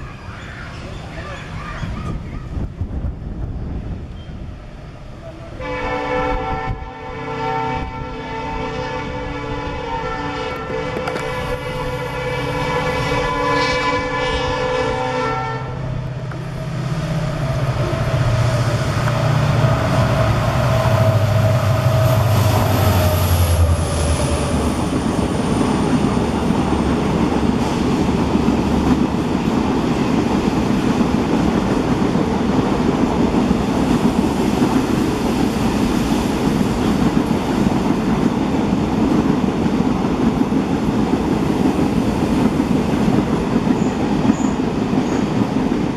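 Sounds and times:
diesel locomotive engine drone: 0:00.0 - 0:45.9
train horn: 0:05.3 - 0:15.9
train wheels clickety-clack: 0:10.4 - 0:12.1, 0:17.4 - 0:45.9.

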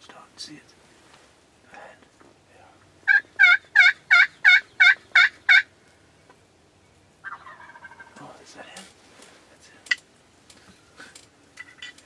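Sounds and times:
turkey yelps: 0:03.0 - 0:05.7, 0:07.2 - 0:08.2.

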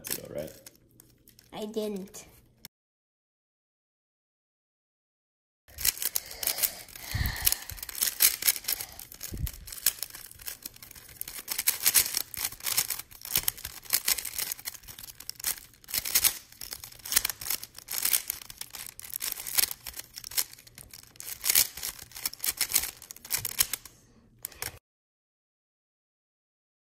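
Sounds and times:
speed cube clicking and clacking: 0:05.7 - 0:24.8.

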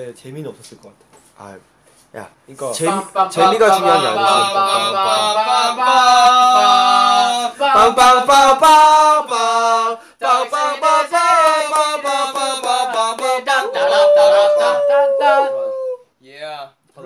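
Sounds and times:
men singing unaccompanied: 0:02.7 - 0:15.8.

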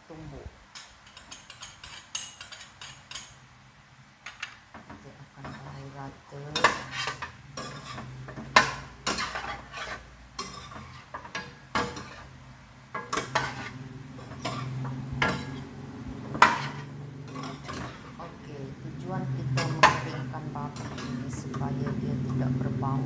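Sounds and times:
metal spoon scraping steel pan: 0:01.0 - 0:03.4, 0:06.5 - 0:12.4, 0:13.0 - 0:18.4, 0:19.4 - 0:22.0
steady low hum: 0:04.8 - 0:23.0.

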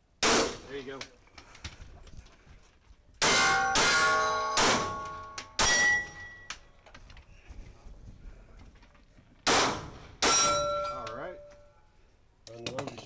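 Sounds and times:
pistol shots: 0:00.2 - 0:00.7, 0:03.2 - 0:06.1, 0:09.4 - 0:10.7
steel target ringing: 0:03.2 - 0:06.5, 0:10.2 - 0:11.7.

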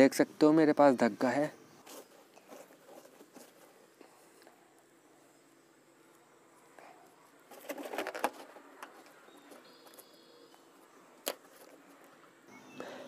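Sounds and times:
rustling and rubbing on balloon: 0:01.8 - 0:04.0, 0:07.4 - 0:10.1.

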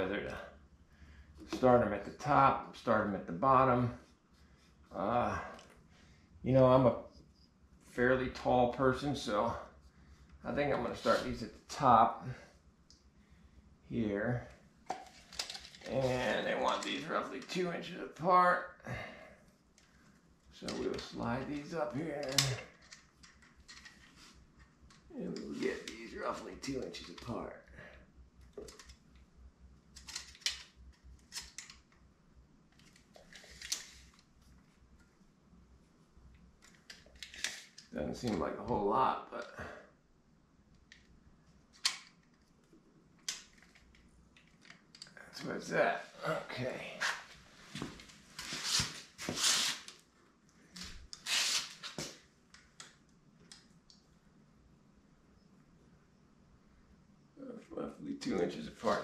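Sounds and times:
clicks and scrapes of handled metal parts: 0:14.9 - 0:17.5, 0:22.2 - 0:24.7, 0:29.9 - 0:31.9, 0:36.6 - 0:37.9.

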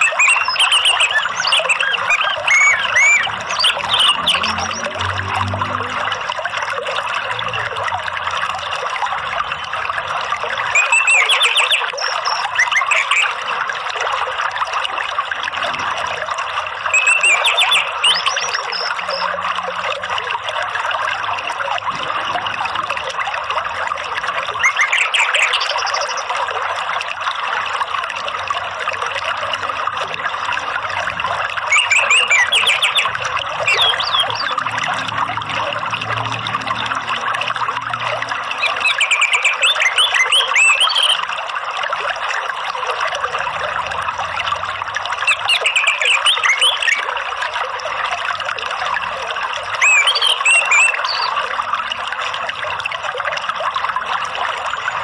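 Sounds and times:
songbird chirping: 0:00.0 - 0:05.0, 0:10.7 - 0:13.3, 0:16.9 - 0:19.3, 0:31.7 - 0:34.7, 0:38.6 - 0:41.2, 0:45.3 - 0:47.0, 0:49.8 - 0:51.4
water trickling: 0:00.0 - 0:55.0.

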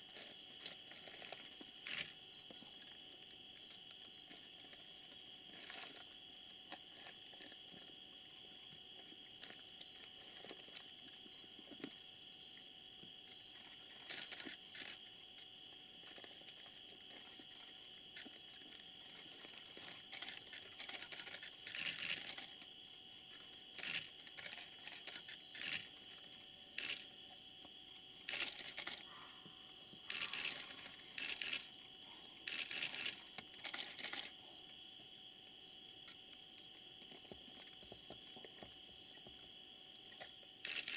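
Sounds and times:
night insects chorus: 0:00.0 - 0:40.9
crackling rustles: 0:00.1 - 0:02.7, 0:04.0 - 0:07.9, 0:13.5 - 0:27.0, 0:28.2 - 0:34.4, 0:40.2 - 0:40.9.

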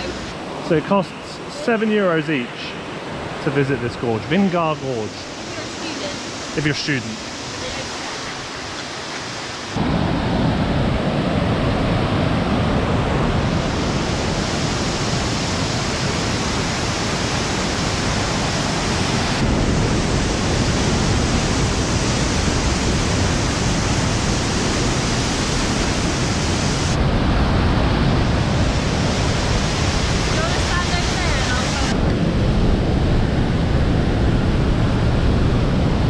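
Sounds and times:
river rushing over rocks: 0:28.3 - 0:32.1.

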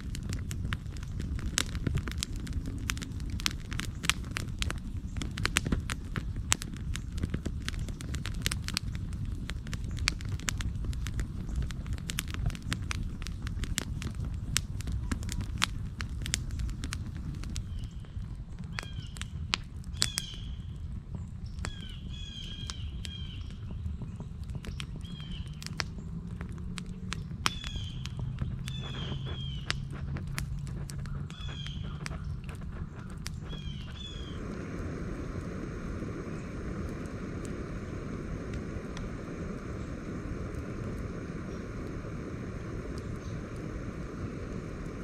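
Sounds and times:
campfire crackling and popping: 0:00.0 - 0:45.0
fire low rumble: 0:00.0 - 0:45.0
bird calling: 0:27.5 - 0:29.9, 0:31.0 - 0:34.5.

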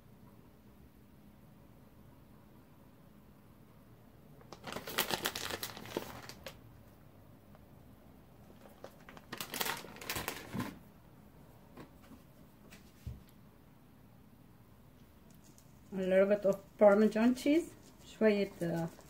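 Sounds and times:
plastic bag crinkling: 0:04.4 - 0:06.6, 0:08.4 - 0:10.8, 0:15.3 - 0:19.0.

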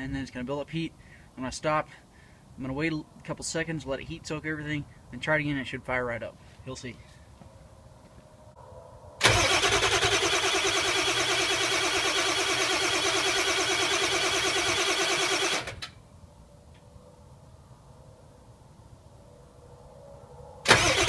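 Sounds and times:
diesel engine cranking on starter: 0:09.2 - 0:16.0, 0:20.6 - 0:21.0.

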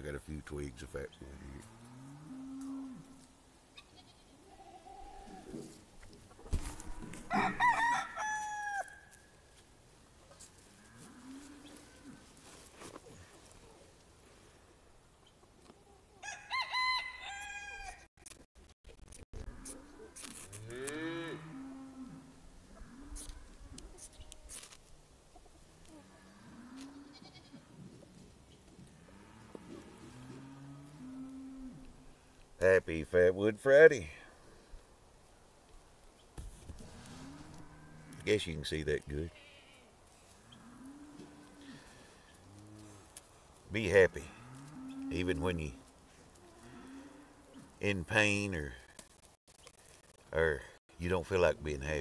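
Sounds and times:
rooster crowing: 0:07.2 - 0:09.1, 0:16.2 - 0:18.1.

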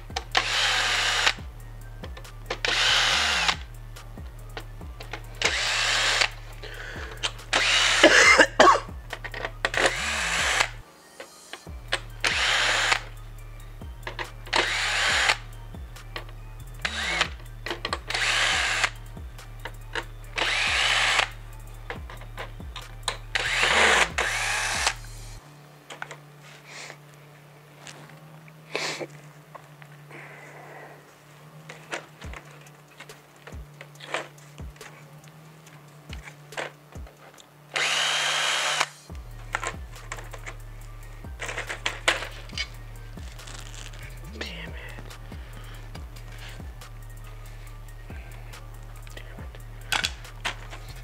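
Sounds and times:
cordless drill driving screws: 0:00.0 - 0:01.4, 0:02.5 - 0:03.7, 0:05.1 - 0:10.8, 0:12.2 - 0:13.2, 0:14.1 - 0:15.5, 0:16.8 - 0:19.0, 0:19.9 - 0:21.4, 0:23.1 - 0:25.2, 0:37.7 - 0:39.1.

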